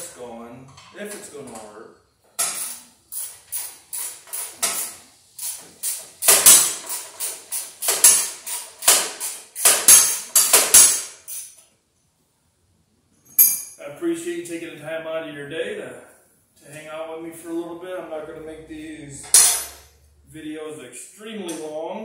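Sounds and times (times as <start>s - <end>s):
metal-on-metal strikes: 19.2s - 19.9s.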